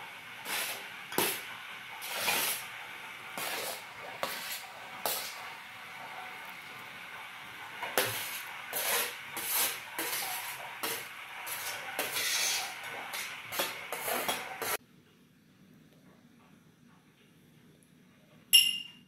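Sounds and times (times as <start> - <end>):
metal spoon scraping metal tray: 2.0 - 2.6, 3.4 - 5.4, 8.0 - 14.8.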